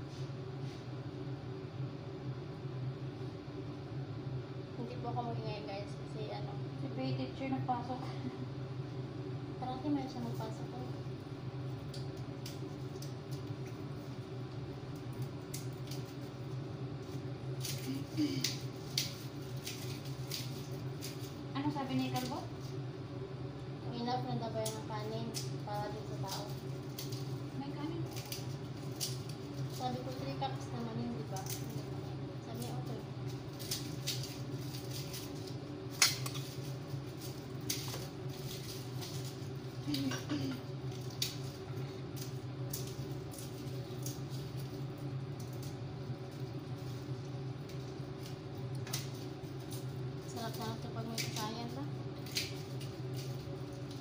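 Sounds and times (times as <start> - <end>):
low machine hum: 0.0 - 54.0.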